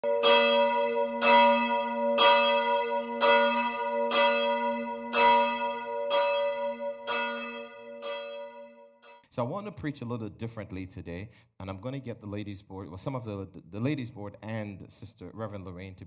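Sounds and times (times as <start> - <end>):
church bell tolling: 0.0 - 9.2.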